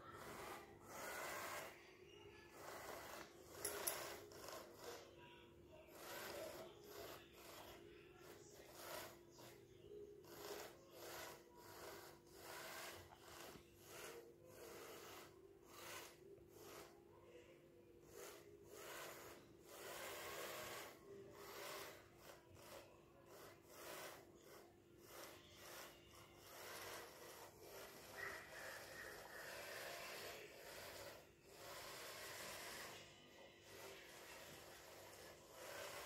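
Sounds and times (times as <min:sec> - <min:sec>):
brush scraping stone floor: 0:00.0 - 0:01.8, 0:18.1 - 0:33.0, 0:33.6 - 0:36.0.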